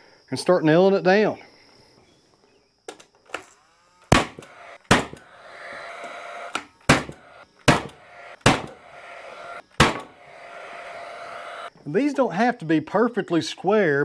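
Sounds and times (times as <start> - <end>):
steady whir: 3.3 - 11.7
nail gun shots: 4.1 - 5.3, 6.5 - 8.8, 9.8 - 10.1.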